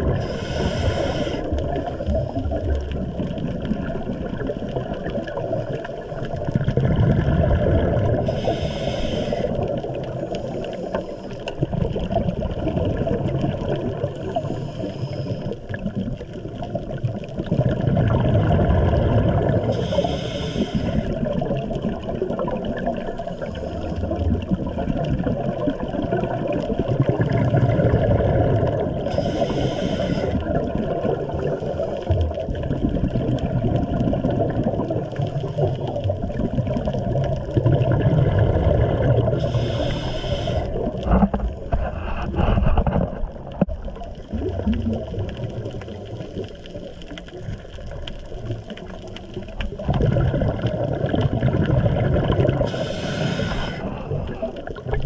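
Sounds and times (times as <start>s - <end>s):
breathy regulator hiss: 0.1s - 2.4s, 8.2s - 11.5s, 14.1s - 15.6s, 19.6s - 21.4s, 29.0s - 30.5s, 39.4s - 41.0s, 52.6s - 54.6s
regulator exhaust bubbles: 40.6s - 53.2s.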